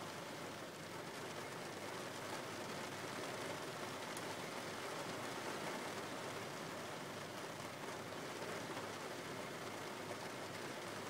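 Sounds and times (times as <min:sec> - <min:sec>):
rain falling on a car: 0:00.0 - 0:11.0.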